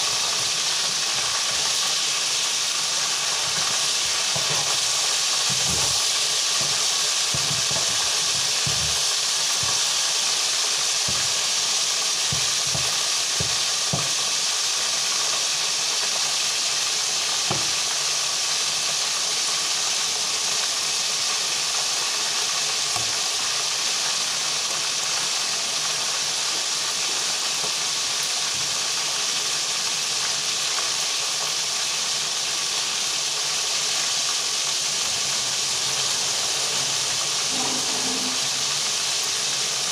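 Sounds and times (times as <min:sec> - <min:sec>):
hot oil sizzling in a wok: 0:00.0 - 0:39.9
pan and spatula knocks: 0:04.3 - 0:09.9, 0:11.0 - 0:11.4, 0:12.3 - 0:14.3, 0:17.5 - 0:17.9.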